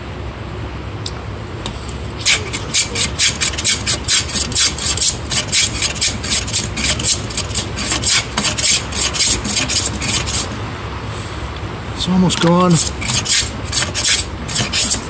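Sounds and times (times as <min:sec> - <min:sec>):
hand plane shaving wood: 0:02.2 - 0:10.6, 0:12.7 - 0:15.0.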